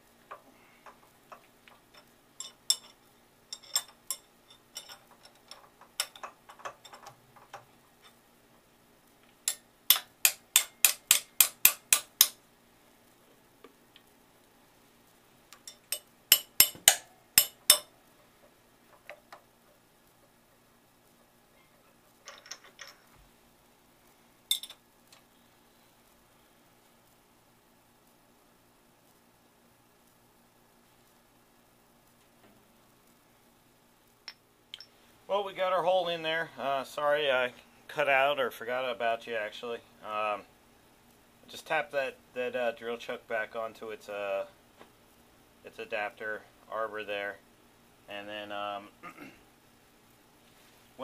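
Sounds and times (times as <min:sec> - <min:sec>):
light metal clinks and knocks: 0:00.3 - 0:08.2, 0:15.6 - 0:17.9, 0:21.6 - 0:23.2, 0:24.5 - 0:24.8, 0:34.2 - 0:35.0
sharp metal taps: 0:09.5 - 0:12.4, 0:15.6 - 0:17.9.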